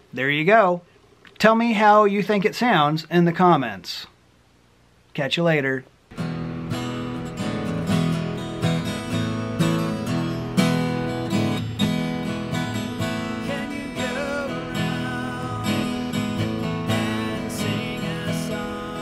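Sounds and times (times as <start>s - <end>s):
guitar strummed chords: 6.1s - 19.0s.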